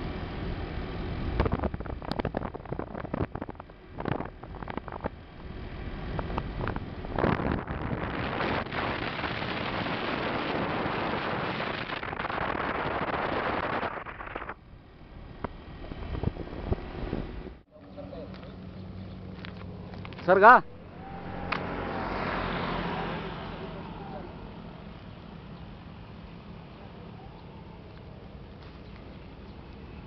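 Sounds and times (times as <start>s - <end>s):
wind buffeting microphone: 1.2s - 17.6s.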